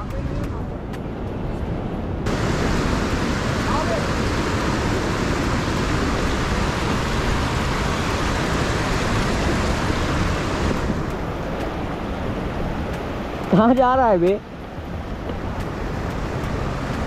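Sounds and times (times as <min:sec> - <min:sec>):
river rapids rushing over rocks: 0:02.3 - 0:14.3.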